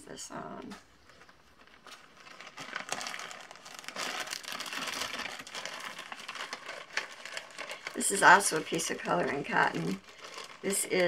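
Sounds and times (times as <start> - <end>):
plastic bag crinkling: 0.4 - 11.0.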